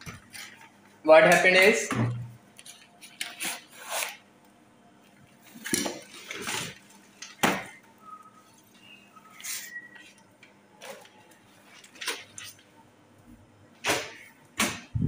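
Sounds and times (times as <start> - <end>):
objects clattering and knocking: 5.4 - 7.8.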